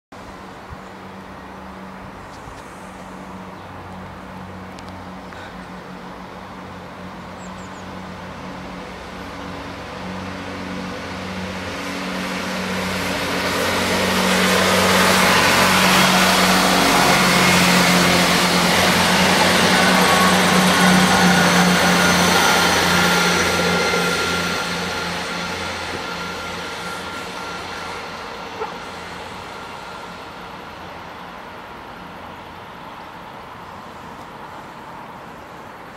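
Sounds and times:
diesel train engines: 0.2 - 35.9
wheel and rail noise: 0.2 - 35.9.

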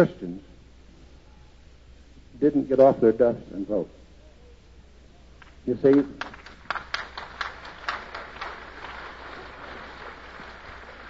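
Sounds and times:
audience applause: 5.9 - 11.0.

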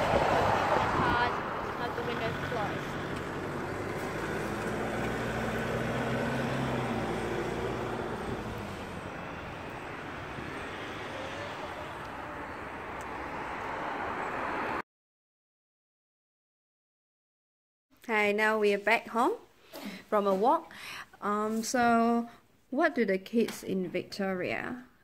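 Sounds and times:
traffic hum: 0.0 - 14.8
vehicle engine passing: 0.0 - 14.8.

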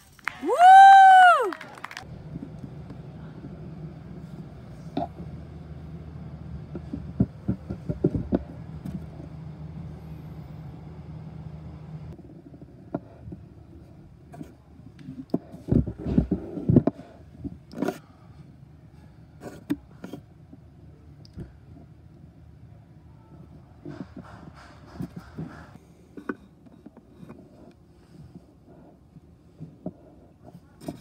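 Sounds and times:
steady low hum: 0.0 - 31.0
knocks and thumps: 6.7 - 9.3.

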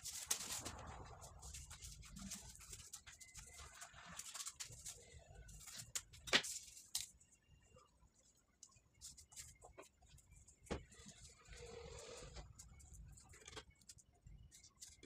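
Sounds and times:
plastic film rustling: 0.0 - 7.1.

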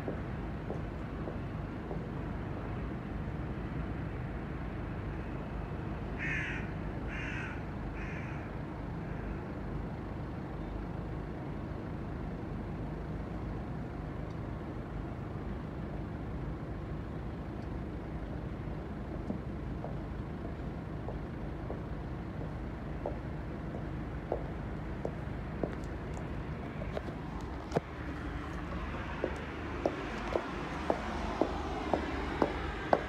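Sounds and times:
low outdoor rumble: 0.0 - 6.1, 6.8 - 33.0
crow cawing: 6.2 - 9.4.

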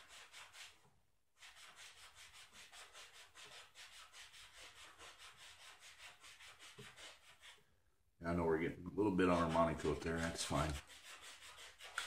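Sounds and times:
sandpaper rubbing back and forth: 0.0 - 0.8, 1.4 - 7.6, 9.1 - 12.0.

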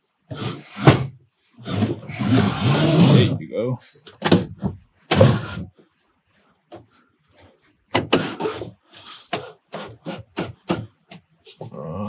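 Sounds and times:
wooden drawer sliding and knocking: 0.3 - 3.5, 4.1 - 5.7, 7.9 - 8.8.

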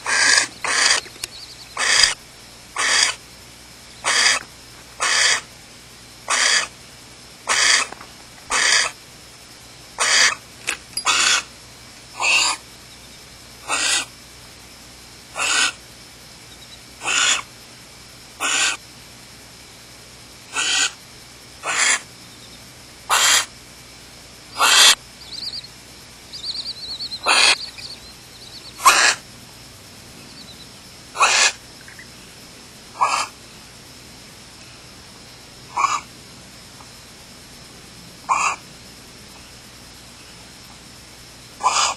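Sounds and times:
rapid chittering: 0.0 - 5.6, 6.2 - 6.8, 7.4 - 9.4, 20.4 - 34.0
owl nestlings begging hiss: 0.0 - 14.2, 14.8 - 17.6, 18.2 - 18.9, 20.4 - 36.1, 38.2 - 38.7, 39.3 - 41.9.

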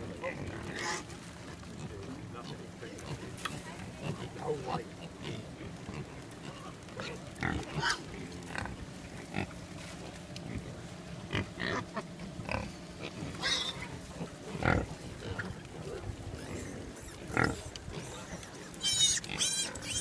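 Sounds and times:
wild boars grunting: 0.0 - 20.0
shrill boar call: 18.8 - 20.0.

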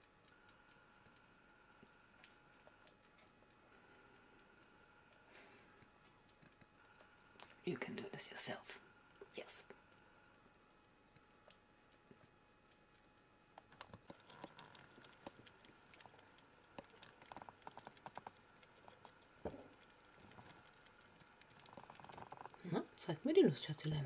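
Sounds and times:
squirrel clicking and scratching: 0.0 - 5.3, 10.4 - 24.0.

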